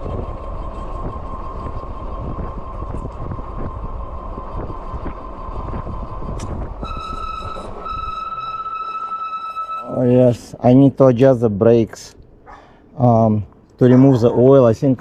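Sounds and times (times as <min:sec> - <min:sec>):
wind and tire rumble: 0:00.0 - 0:08.5
thin steady whine: 0:00.0 - 0:15.0
disc brakes squealing: 0:04.2 - 0:10.6
person talking: 0:13.0 - 0:15.0.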